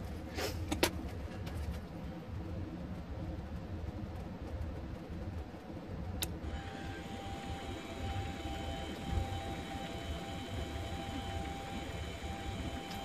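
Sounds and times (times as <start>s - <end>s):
low hum: 1.0s - 13.0s
lathe motor whine: 6.4s - 13.0s.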